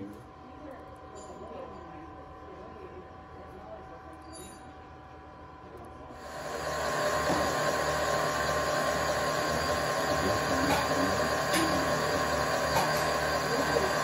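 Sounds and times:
milling machine cutting metal: 6.2 - 14.0.

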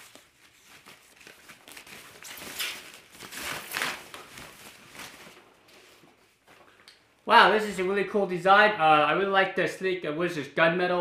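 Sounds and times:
plastic bag rustling and crinkling: 0.0 - 6.7.

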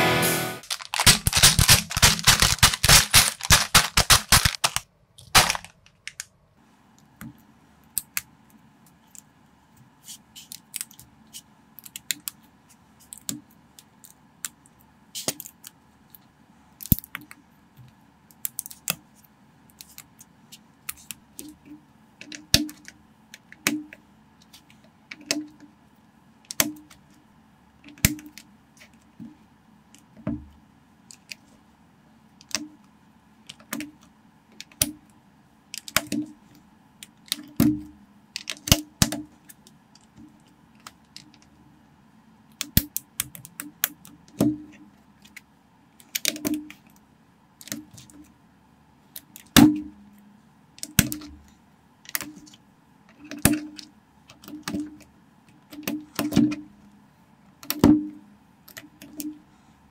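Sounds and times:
plastic bricks snapping together: 0.6 - 6.3.

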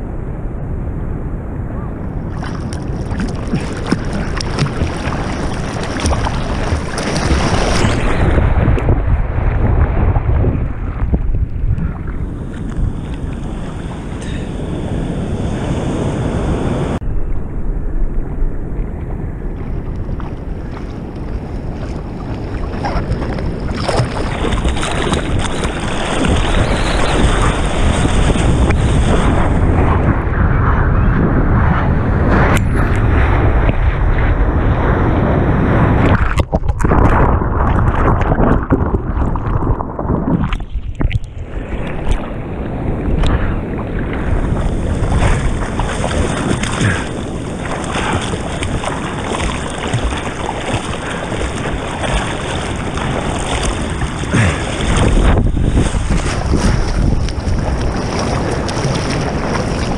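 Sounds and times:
ocean surf churning: 0.0 - 59.9
wind buffeting microphone: 0.0 - 59.9
sharp water splashes: 2.3 - 9.8, 21.9 - 29.7, 43.2 - 59.9.

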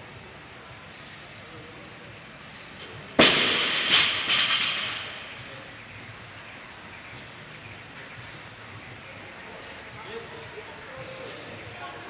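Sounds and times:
barbell bouncing and rattling: 2.8 - 5.6
barbell crashing on rubber floor: 3.2 - 5.5.

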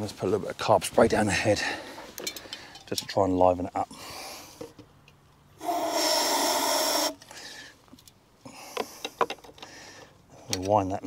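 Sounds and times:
aerosol spray hiss: 5.6 - 7.2.

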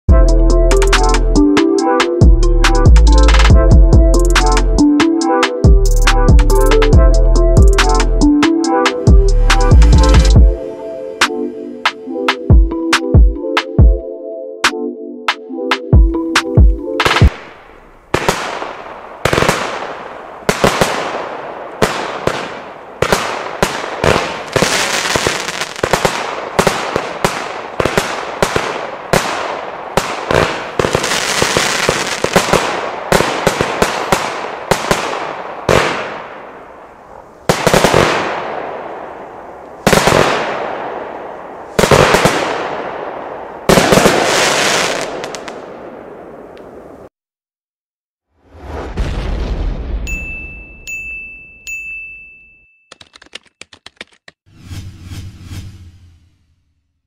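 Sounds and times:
fireworks banging and hissing: 17.0 - 43.0, 43.6 - 47.0.

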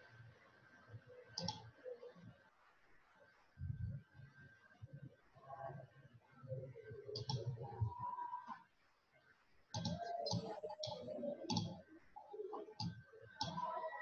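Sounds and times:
computer mouse clicking: 1.4 - 1.6, 7.2 - 7.5, 9.7 - 11.8, 12.8 - 14.0.

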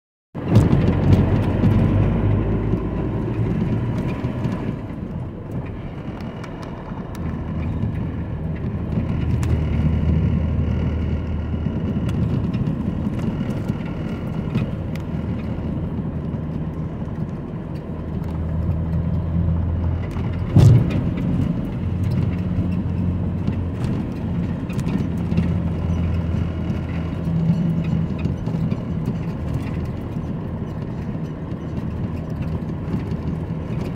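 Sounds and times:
vehicle engine and tyre noise: 0.4 - 33.9
knocks and rattles: 20.0 - 33.9
sharp thump: 20.5 - 21.3.

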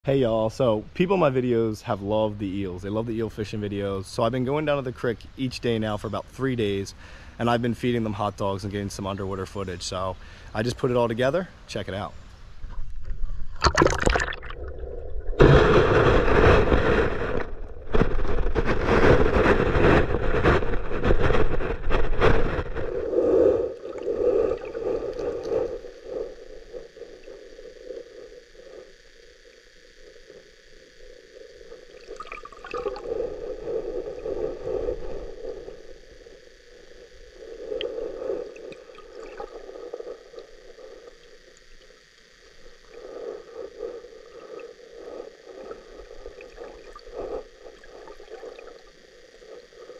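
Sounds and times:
underwater creek water rushing: 12.9 - 49.9.

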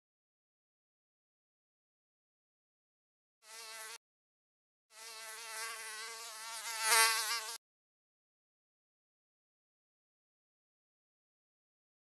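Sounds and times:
fly buzzing: 3.4 - 4.0, 4.9 - 7.6.

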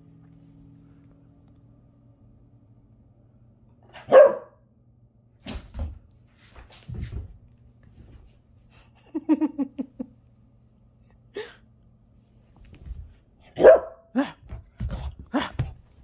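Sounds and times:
puppy barking: 3.9 - 4.6, 13.6 - 14.1.

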